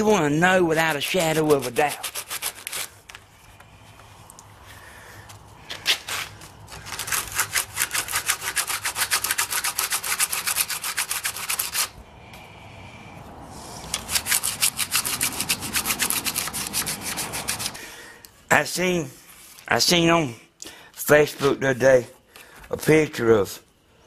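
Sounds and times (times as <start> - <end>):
sandpaper scraping wood: 0.8 - 3.1, 5.7 - 12.0, 13.8 - 17.8.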